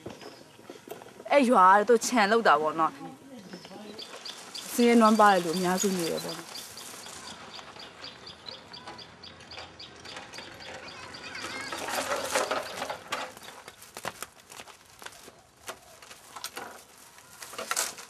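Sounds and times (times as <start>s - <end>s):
birds calling: 3.2s - 14.0s.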